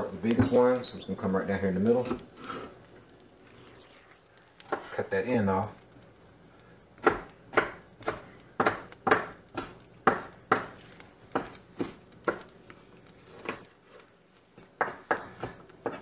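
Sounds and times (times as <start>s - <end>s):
knife chopping on wooden board: 7.0s - 12.5s, 14.8s - 16.0s.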